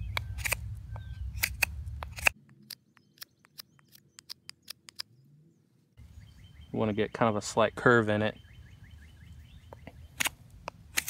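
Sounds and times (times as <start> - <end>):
low background rumble: 0.0 - 2.4.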